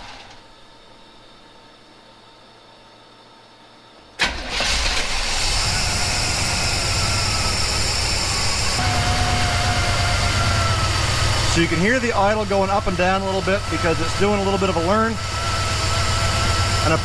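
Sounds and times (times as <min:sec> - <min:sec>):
car engine starting and idling: 0:04.2 - 0:17.0.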